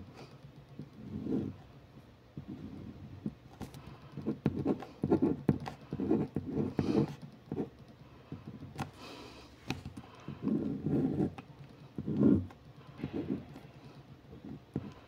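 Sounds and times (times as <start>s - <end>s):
pencil scratching on paper: 1.0s - 1.6s, 3.8s - 8.9s, 10.3s - 15.0s
sharp taps on paper: 3.6s - 9.0s.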